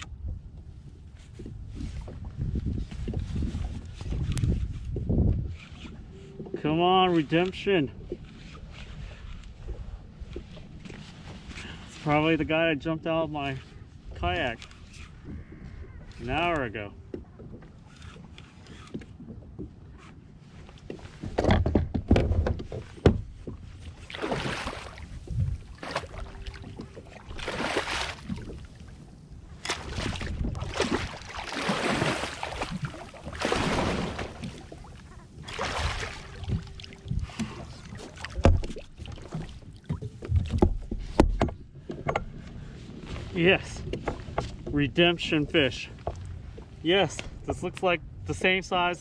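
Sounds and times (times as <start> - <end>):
dull knocks on kayak hull: 21.3 - 23.6, 40.0 - 42.3
water splashing beside kayak: 22.2 - 49.0.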